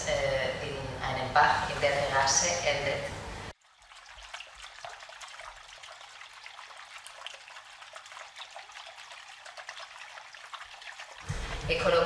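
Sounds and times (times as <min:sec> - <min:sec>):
water trickling in a channel: 0:03.5 - 0:12.0.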